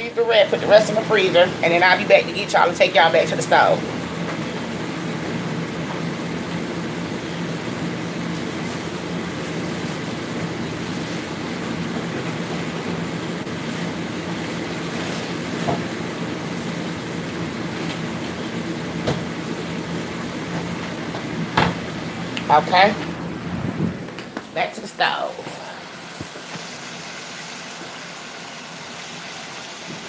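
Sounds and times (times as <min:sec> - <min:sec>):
household machine running: 0:25.0 - 0:30.0.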